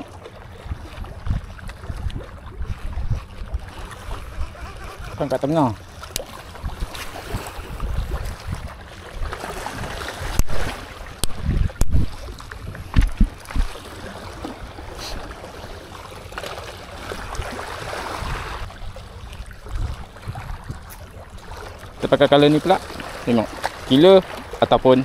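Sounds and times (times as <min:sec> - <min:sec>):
wind buffeting microphone: 0:00.0 - 0:14.8, 0:17.2 - 0:21.5
waves lapping against rocks: 0:00.0 - 0:25.0.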